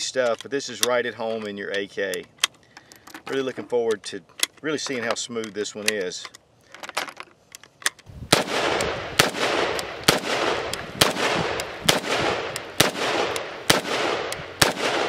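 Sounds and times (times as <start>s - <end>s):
rifle single shots with echo: 8.3s - 15.0s.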